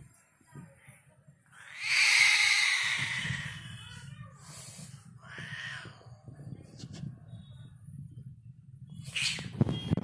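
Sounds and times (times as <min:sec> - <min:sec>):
cat hissing: 0:01.6 - 0:03.7.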